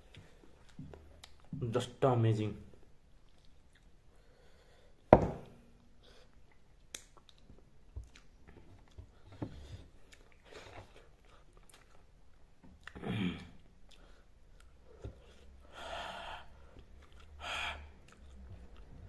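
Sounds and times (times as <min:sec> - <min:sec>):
person chewing food: 0:00.0 - 0:01.5, 0:03.1 - 0:04.8, 0:06.0 - 0:15.6, 0:16.5 - 0:19.0.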